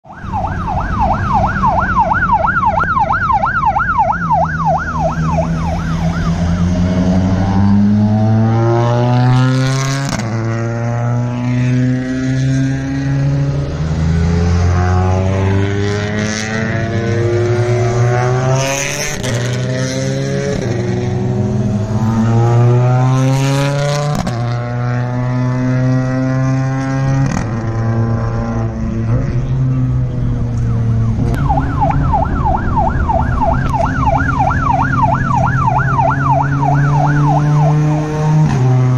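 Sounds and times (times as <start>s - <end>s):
siren yelping: 0.0s - 9.6s, 21.4s - 23.7s, 30.4s - 38.4s
rally cars accelerating past: 5.9s - 32.8s, 36.5s - 38.9s.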